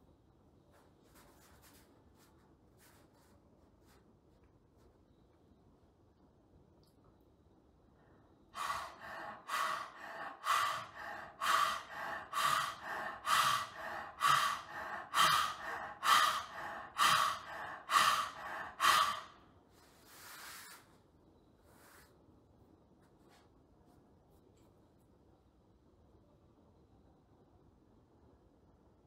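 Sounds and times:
man panting forcefully: 8.6 - 19.4.

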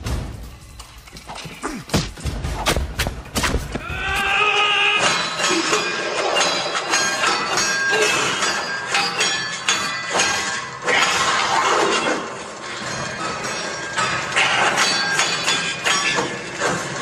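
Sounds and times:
stick hits and whacks: 1.9 - 4.3.

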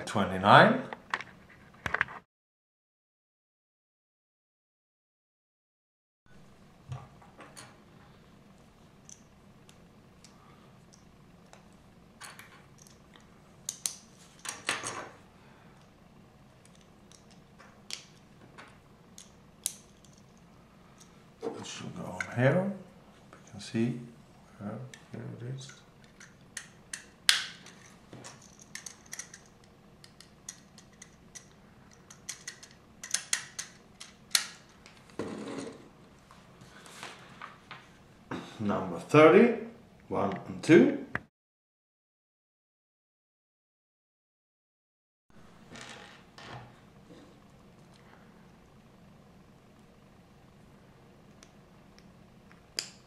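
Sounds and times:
faint low hum: 6.3 - 41.2
plastic pieces clicking together: 28.4 - 34.6.

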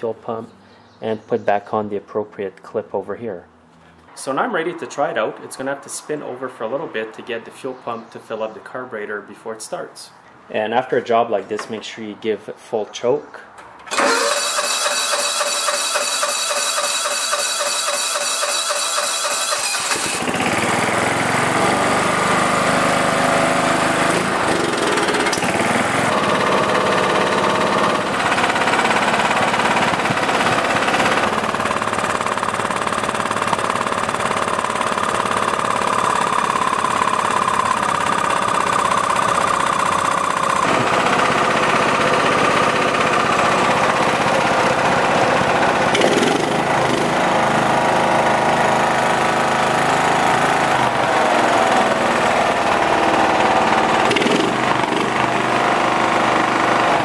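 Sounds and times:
engine speed stepping up and down: 13.8 - 57.0.

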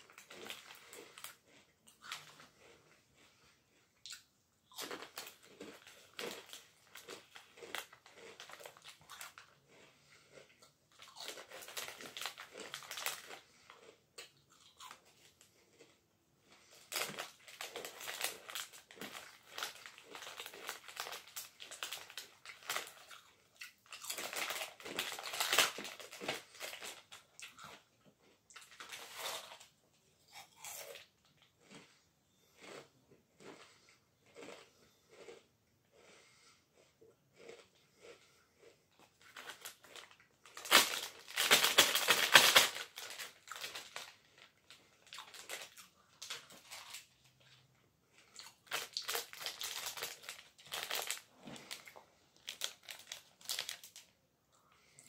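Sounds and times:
crunching and chewing crisps: 0.0 - 55.0
foil crisp packet rustling: 11.1 - 13.4, 16.9 - 23.2, 23.9 - 27.2, 39.2 - 47.2, 48.4 - 54.1.

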